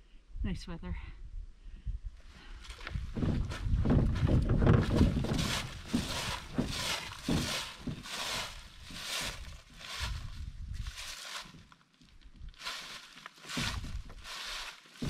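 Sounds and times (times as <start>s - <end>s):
footsteps crunching dry leaves: 4.8s - 15.0s.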